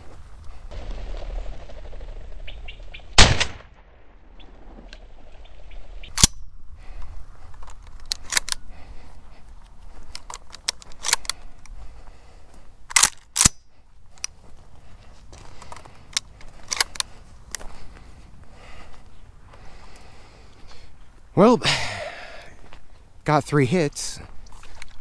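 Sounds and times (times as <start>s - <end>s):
footsteps through dry brush: 0.0s - 1.5s, 6.6s - 21.4s, 22.1s - 23.2s, 24.1s - 25.0s
shotgun shot: 3.1s - 4.3s.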